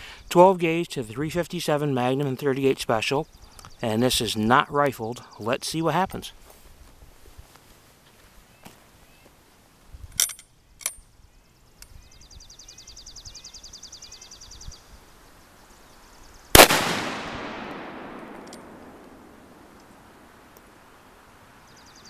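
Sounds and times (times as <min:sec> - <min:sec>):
shotgun shot ringing out: 0:16.6 - 0:19.7
sharp clicks: 0:16.6 - 0:20.0.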